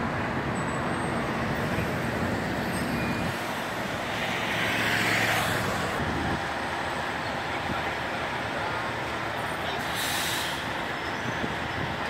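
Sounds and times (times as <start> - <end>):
road traffic: 0.0 - 12.0
vehicle passing: 3.6 - 6.4.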